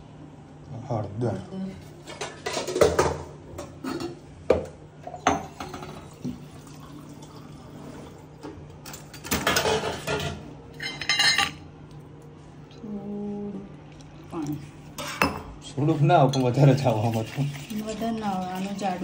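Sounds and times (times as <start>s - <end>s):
steel kitchenware clinking: 8.8s - 11.6s, 15.0s - 15.6s.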